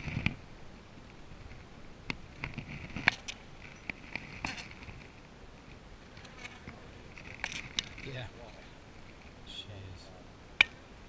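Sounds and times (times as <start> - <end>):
wooden frames clicking and crackling: 6.1 - 9.4.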